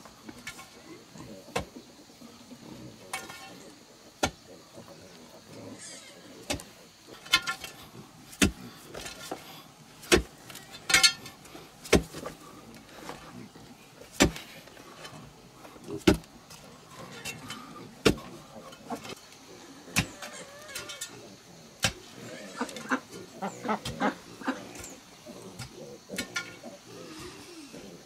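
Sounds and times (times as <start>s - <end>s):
pick chopping into clay soil: 6.5s - 6.7s, 8.3s - 9.4s, 10.0s - 10.5s, 11.8s - 12.4s, 14.1s - 14.6s, 16.0s - 16.3s, 18.0s - 18.3s.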